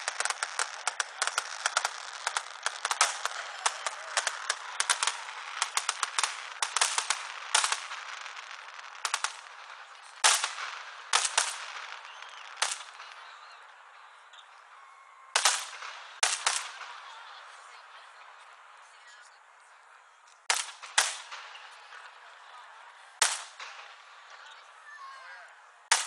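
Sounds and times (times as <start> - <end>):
loud firework bangs: 0.0 - 13.9, 15.3 - 17.4, 20.4 - 22.2, 23.2 - 24.5
fireworks popping and crackling: 0.0 - 19.1, 20.4 - 26.0.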